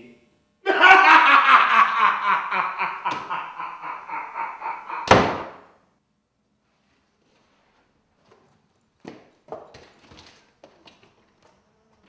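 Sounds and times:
man's villain laugh: 0.6s - 5.6s
door slamming shut: 5.0s - 5.6s.

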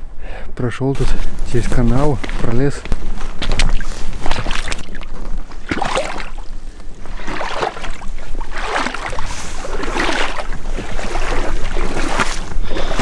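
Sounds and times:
steps rustling through dry grass: 1.0s - 4.4s
person wading through water: 3.4s - 13.0s.

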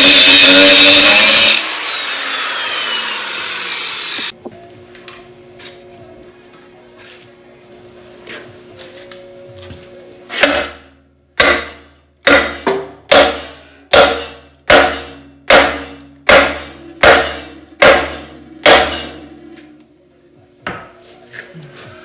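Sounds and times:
sledgehammer striking steel: 10.3s - 19.3s.

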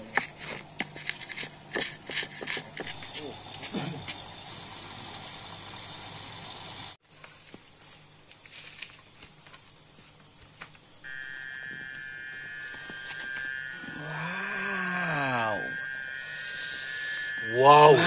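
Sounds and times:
crickets trilling: 0.0s - 18.0s
lower steady trill: 11.1s - 18.0s.

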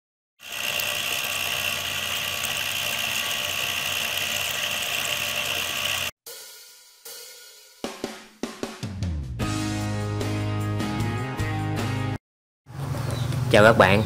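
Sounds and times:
electric motor high whine: 0.4s - 6.2s.

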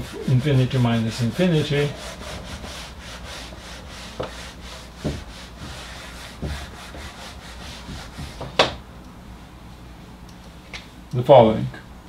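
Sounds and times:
eraser wiping a whiteboard: 0.0s - 8.8s
short knocks: 5.0s - 8.8s.

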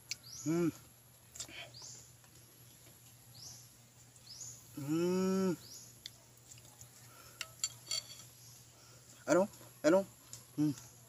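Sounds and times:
man humming mmm: 0.4s - 0.9s, 4.8s - 5.7s.

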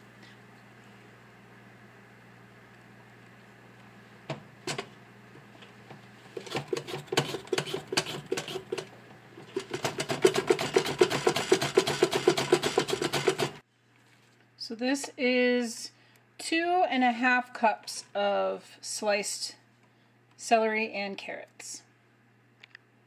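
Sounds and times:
mandoline slicer scraping strokes: 6.4s - 8.9s.

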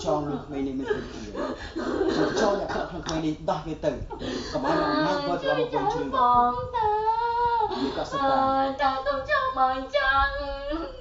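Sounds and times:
high voice singing: 4.6s - 11.0s.

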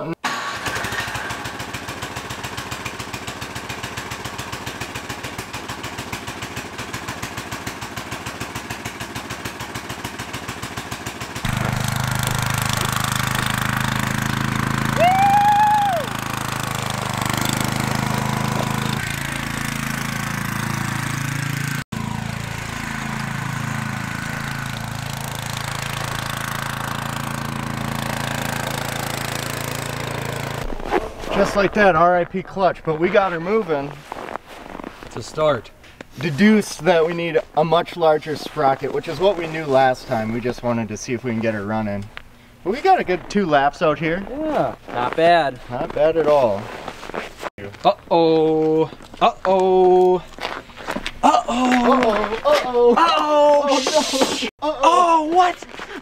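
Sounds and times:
small engine chugging: 0.3s - 30.6s.

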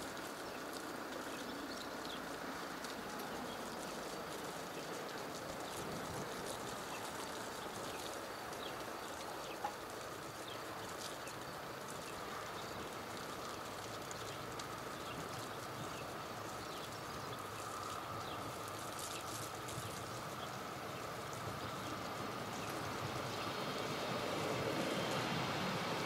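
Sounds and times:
background hiss: 0.0s - 26.0s.

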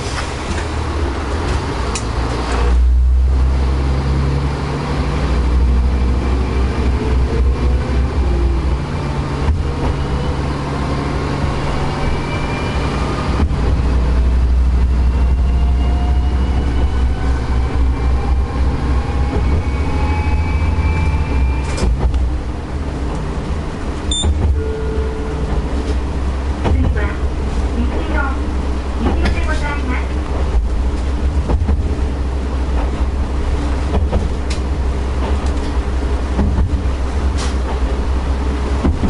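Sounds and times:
diesel railcar engine drone: 0.0s - 39.0s.

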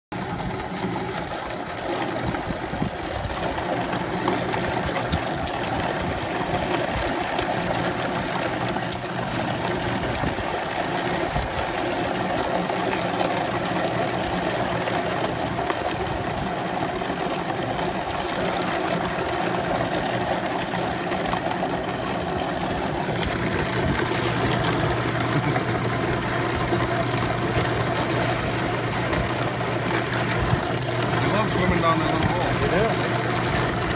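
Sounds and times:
machine humming: 0.1s - 33.9s.

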